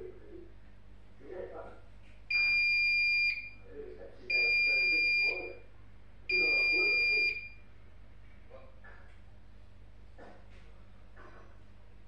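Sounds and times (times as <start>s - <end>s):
washing machine electronic beeps: 2.3s - 3.6s, 4.3s - 5.6s, 6.3s - 7.6s.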